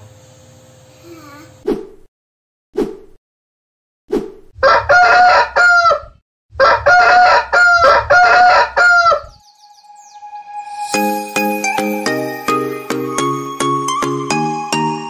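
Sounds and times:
rooster crowing: 4.6 - 9.6.

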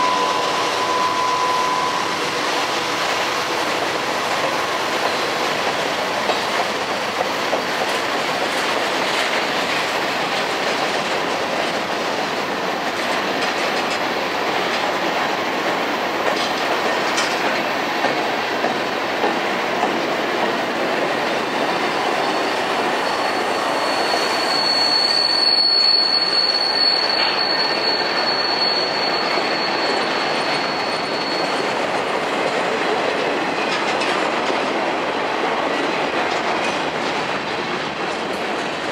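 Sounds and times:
high wheel squeal: 0.0 - 5.7, 21.4 - 32.0
freight train wheels rumbling: 0.0 - 38.9.

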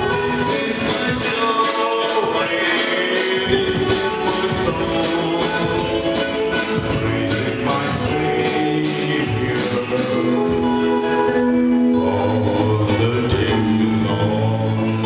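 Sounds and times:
jingling percussion beat: 0.0 - 10.7, 13.9 - 15.0
man singing a hymn: 0.0 - 11.0, 11.9 - 15.0
accordion: 0.0 - 15.0
electric guitar: 0.0 - 15.0
keyboard: 0.0 - 15.0.

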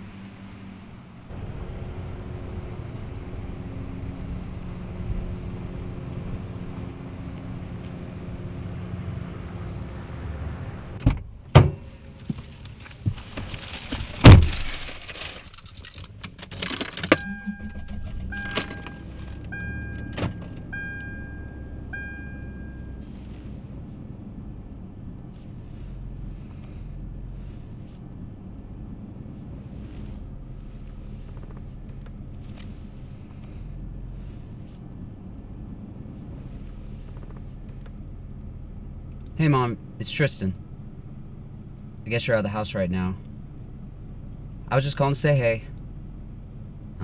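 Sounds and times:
car door slamming shut: 11.0 - 11.9, 14.2 - 14.7
rustling: 11.8 - 16.0
keys jingling: 15.4 - 19.0
car warning chime dinging: 17.1 - 23.0.

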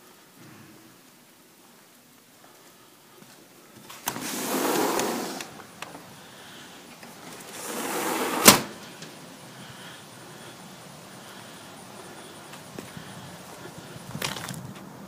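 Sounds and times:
sliding glass door rumbling: 3.9 - 5.8, 6.9 - 9.2.

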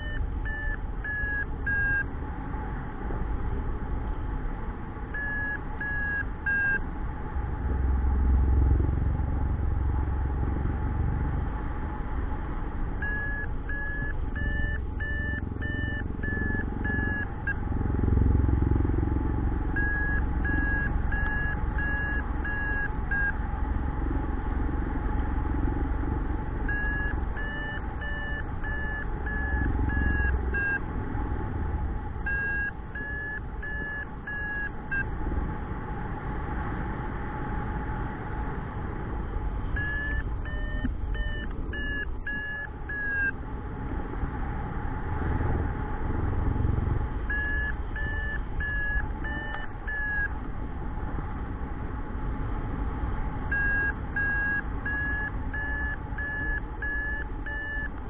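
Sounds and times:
variometer short beeps: 0.0 - 2.1, 5.2 - 6.8, 13.0 - 17.6, 19.2 - 23.4, 26.6 - 30.8, 32.2 - 35.1, 39.8 - 43.4, 47.3 - 50.4, 53.5 - 58.0.

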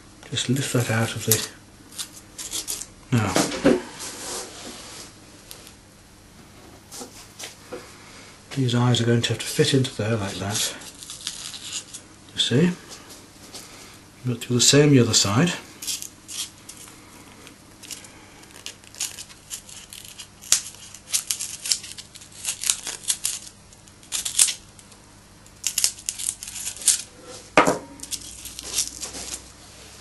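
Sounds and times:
snips scrapes and rustles: 0.5 - 2.9, 9.5 - 12.0, 15.8 - 29.5.

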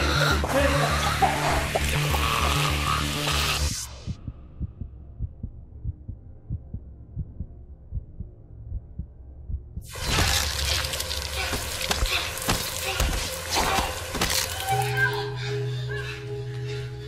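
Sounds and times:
loud dense film music: 0.0 - 4.7, 10.0 - 17.0
muffled heartbeat thuds: 4.0 - 9.9.

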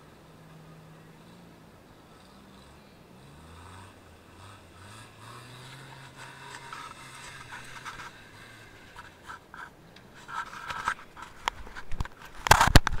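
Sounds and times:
faint vehicle engine hum: 0.0 - 12.5
microphone handling noise: 8.9 - 13.0.

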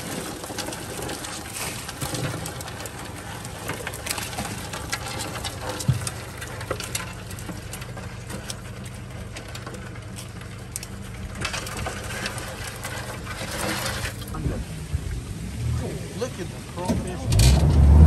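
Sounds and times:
crawfish rattling in metal tray: 0.0 - 14.4
outboard motor running: 0.0 - 18.0.

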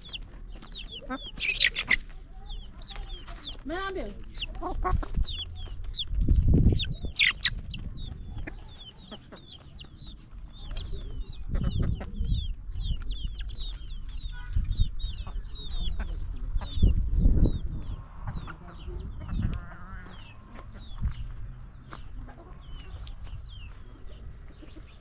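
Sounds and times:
chickens clucking: 0.0 - 25.0
chicks peeping: 0.0 - 25.0.

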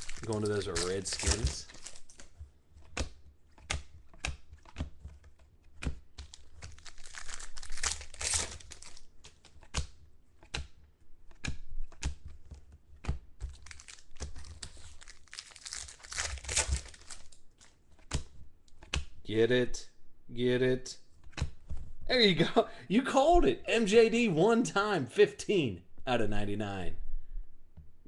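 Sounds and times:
plastic wrapper crinkling: 0.0 - 2.3, 6.2 - 9.1, 13.5 - 17.7
cards clicking and snapping: 0.0 - 19.2.

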